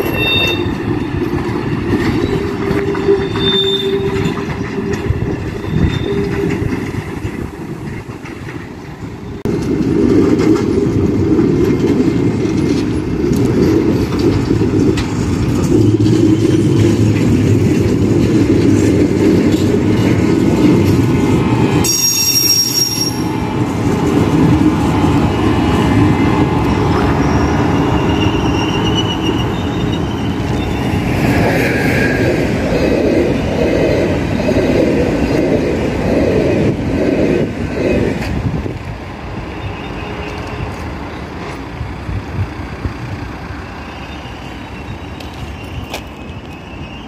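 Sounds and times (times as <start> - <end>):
wheel squeal: 0.0 - 7.0, 15.6 - 17.4, 21.8 - 23.4, 26.7 - 31.8, 43.8 - 47.0
wheels clattering over rail joints: 0.0 - 22.2
locomotive rumbling past: 0.0 - 47.0.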